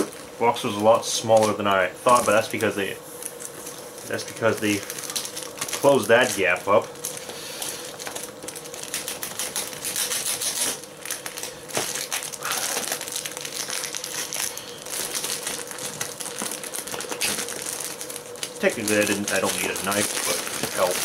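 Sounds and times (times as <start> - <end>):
faint steady hum: 0.0 - 21.0
cardboard box crinkling: 7.8 - 21.0.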